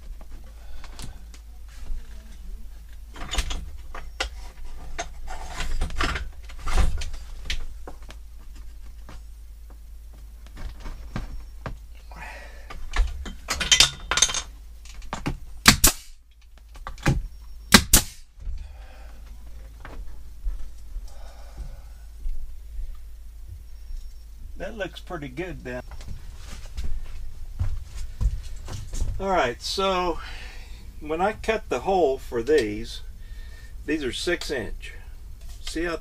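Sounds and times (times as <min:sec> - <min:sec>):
nail gun shots: 0:15.6 - 0:16.2, 0:17.7 - 0:18.3.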